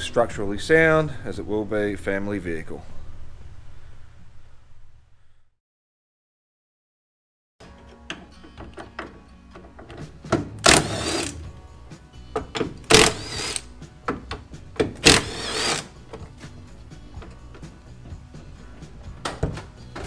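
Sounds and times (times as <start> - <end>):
impact driver undoing bolts: 7.8 - 11.4, 12.3 - 18.1.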